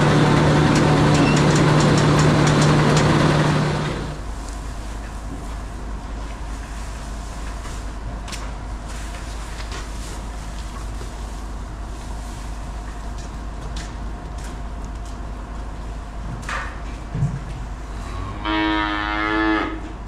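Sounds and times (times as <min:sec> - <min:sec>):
engine droning: 0:00.0 - 0:04.8
cow mooing: 0:18.0 - 0:20.0.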